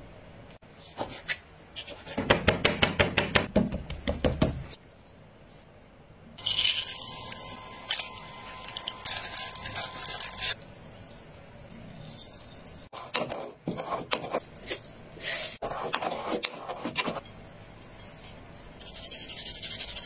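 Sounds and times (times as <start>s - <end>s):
hot oil sizzling in a pot: 6.4s - 10.6s
spices being stirred: 6.4s - 20.0s.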